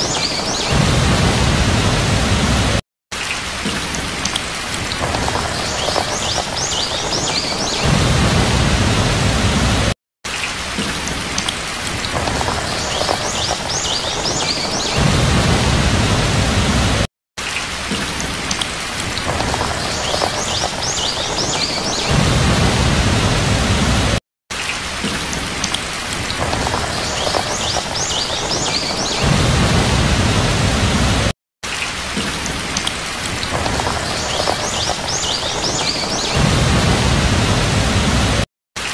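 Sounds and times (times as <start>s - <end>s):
low thunder rumbles: 0.0s - 2.8s, 4.7s - 10.0s, 11.8s - 17.1s, 19.0s - 24.2s, 26.1s - 31.3s, 33.2s - 38.4s
heavy rain: 0.0s - 38.9s.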